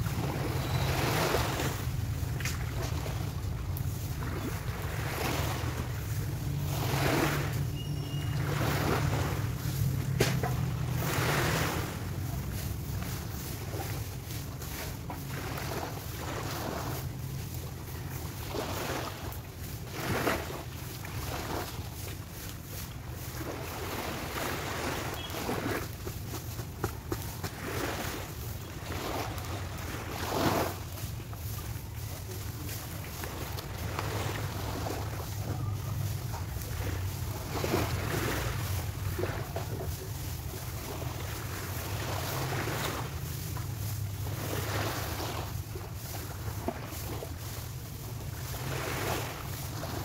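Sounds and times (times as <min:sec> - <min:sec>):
small waves washing on sand: 0:00.0 - 0:50.0
wind on microphone: 0:00.0 - 0:50.0.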